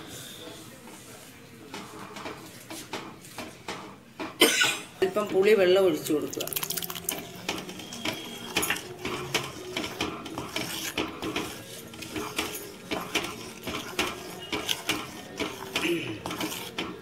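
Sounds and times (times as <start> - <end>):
wooden spoon scraping clay pot: 5.1 - 17.0.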